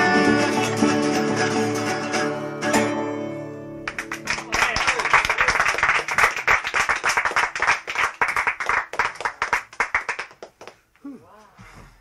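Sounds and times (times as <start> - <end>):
audience applause: 3.9 - 10.8.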